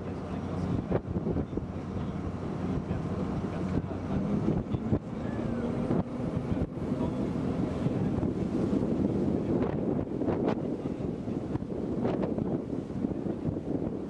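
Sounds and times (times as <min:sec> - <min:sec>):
boat engine droning: 0:00.0 - 0:14.0
wind rushing over microphone: 0:00.0 - 0:14.0.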